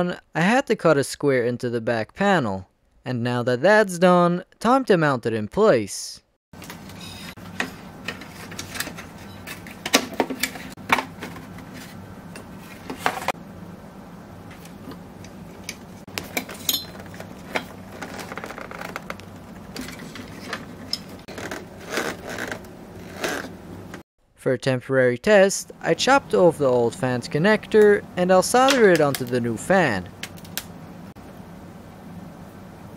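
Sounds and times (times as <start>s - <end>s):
low steady hum: 6.6s - 32.9s.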